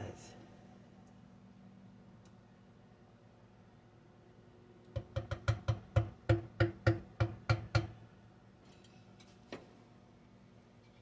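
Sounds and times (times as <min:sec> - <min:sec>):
wooden spoon knocking on stoneware: 0:05.0 - 0:08.0.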